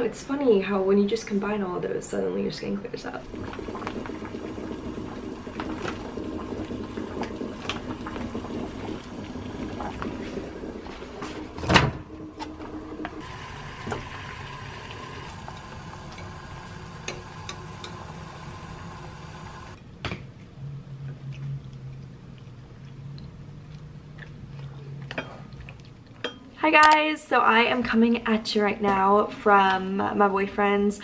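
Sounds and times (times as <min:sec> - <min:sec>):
steady hum: 0:03.2 - 0:19.8.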